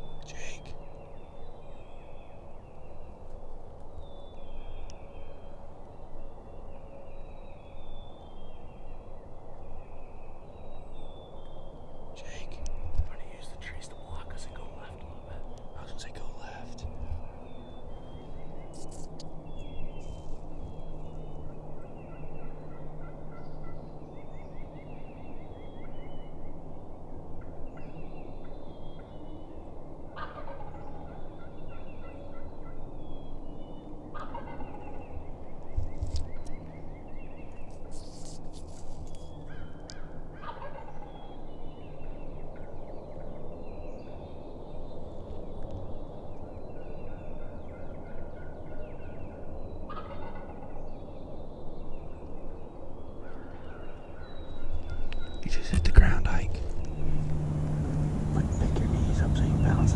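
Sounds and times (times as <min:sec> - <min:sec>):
songbirds chirping: 0:00.0 - 0:59.9
turkey gobbling: 0:30.2 - 0:30.8, 0:34.2 - 0:34.7, 0:40.4 - 0:41.1, 0:49.9 - 0:50.7.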